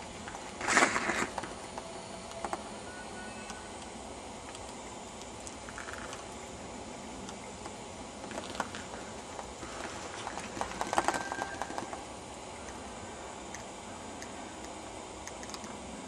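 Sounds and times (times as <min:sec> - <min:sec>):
steady outdoor hiss: 0:00.0 - 0:16.0
rustling and crackling of leaves: 0:08.2 - 0:12.1.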